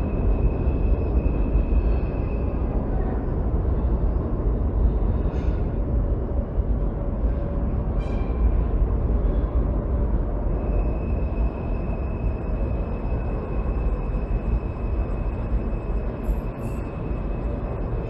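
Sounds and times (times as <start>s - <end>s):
subway train rumbling: 0.0s - 18.0s
high steady whine: 5.8s - 18.0s.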